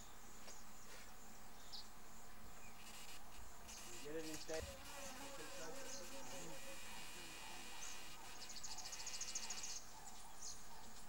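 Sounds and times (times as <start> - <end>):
faint wavering insect buzz: 0.8 - 10.5
high-pitched insect trill: 2.6 - 10.5.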